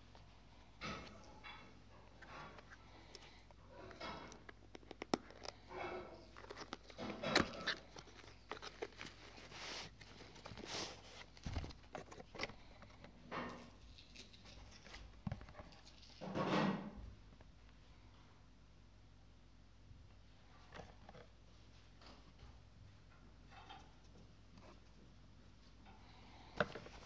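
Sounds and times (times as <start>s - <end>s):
cardboard rustling and scraping: 2.1s - 16.0s, 26.6s - 27.0s.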